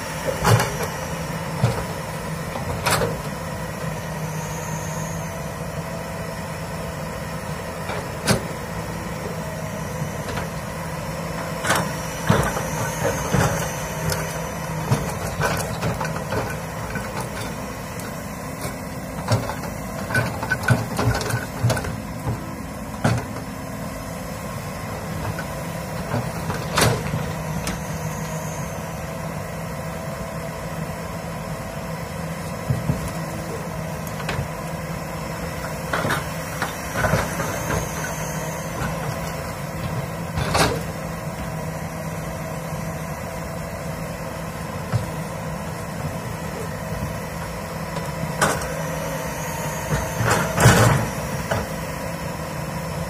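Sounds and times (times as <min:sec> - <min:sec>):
excavator diesel engine running: 0:00.0 - 0:53.0
faint high whine: 0:03.7 - 0:06.8, 0:26.0 - 0:29.6.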